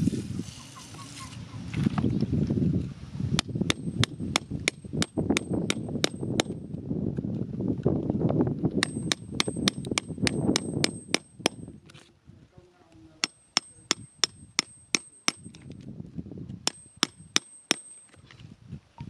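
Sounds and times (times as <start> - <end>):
digging tool tapping stony ground: 3.4 - 6.7, 8.8 - 11.8, 13.2 - 15.9, 16.6 - 18.4.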